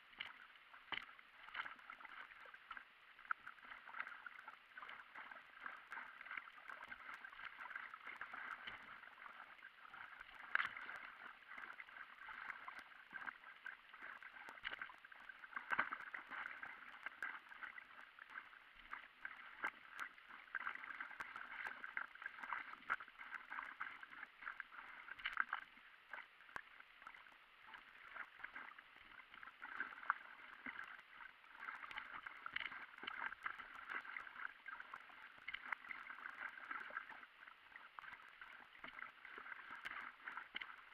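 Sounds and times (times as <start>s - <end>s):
water splashing and gurgling: 0.0s - 40.9s.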